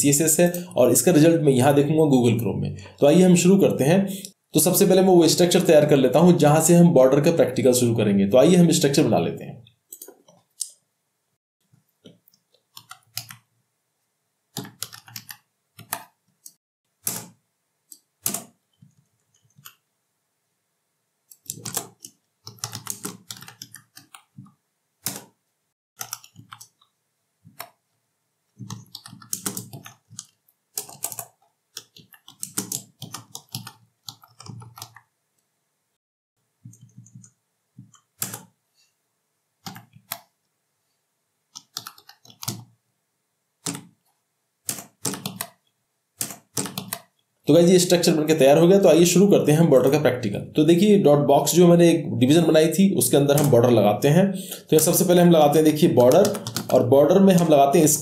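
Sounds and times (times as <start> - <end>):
keyboard typing: 12.0 - 13.5, 14.5 - 19.8, 21.3 - 25.4, 26.0 - 27.8, 28.6 - 35.1, 36.6 - 38.6, 39.6 - 40.4, 41.5 - 42.7, 43.6 - 45.6, 46.2 - 47.2, 53.3 - 53.7, 54.6 - 58.0.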